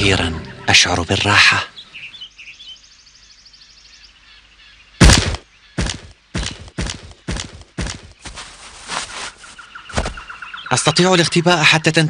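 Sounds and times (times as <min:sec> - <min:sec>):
rustling hits: 0:05.2 - 0:10.3.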